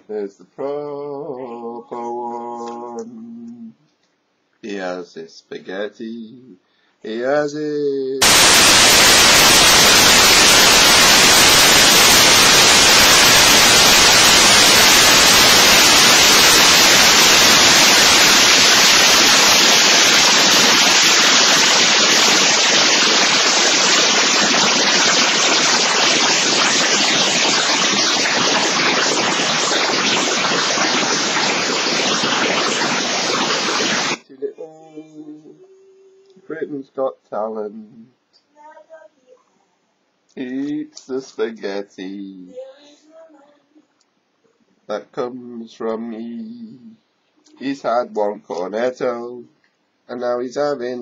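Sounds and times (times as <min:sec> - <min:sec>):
loud static hiss: 0:08.2 - 0:35.6.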